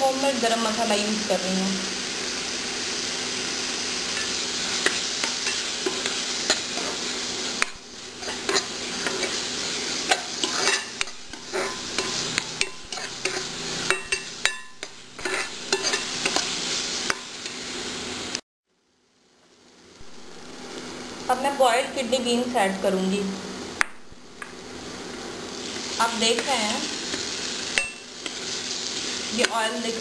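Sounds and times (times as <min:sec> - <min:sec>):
frying sizzle: 0:00.0 - 0:30.0
metal spatula scraping pan: 0:08.2 - 0:16.6.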